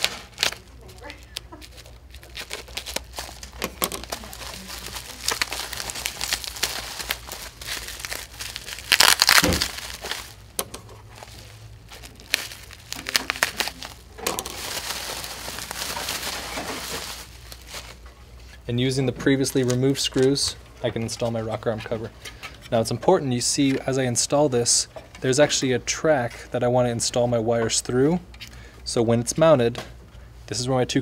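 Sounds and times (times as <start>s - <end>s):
bubble wrap crinkling and crackling: 0.0s - 18.6s
plastic cover being pulled off: 1.7s - 18.0s.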